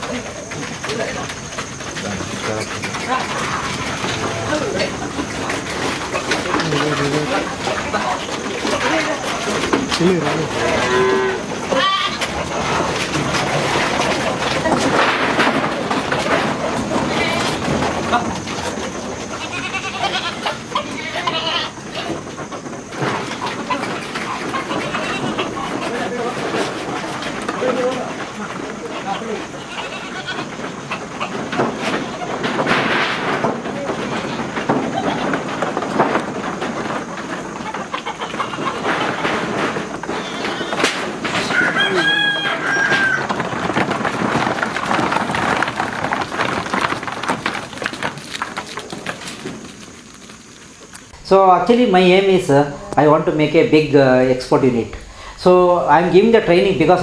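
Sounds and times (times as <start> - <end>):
hooves knocking on wooden planks: 0.0 - 57.0
goats bleating: 5.8 - 13.0, 16.8 - 18.4, 19.1 - 22.3, 23.3 - 32.6, 33.9 - 35.7, 37.5 - 45.6
high held animal call: 10.6 - 12.3, 40.1 - 43.4.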